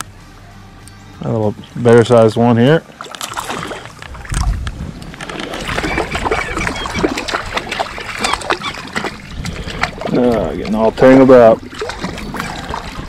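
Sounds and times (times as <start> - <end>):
water splashing and sloshing: 1.6 - 13.0.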